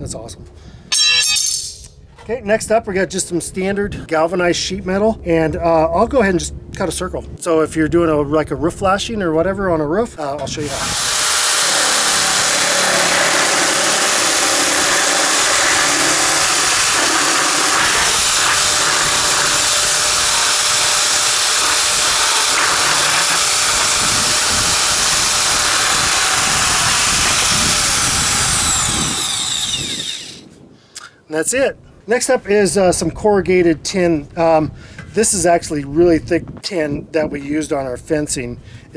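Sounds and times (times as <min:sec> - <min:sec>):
sheet metal nibbler cutting: 0:10.4 - 0:30.4.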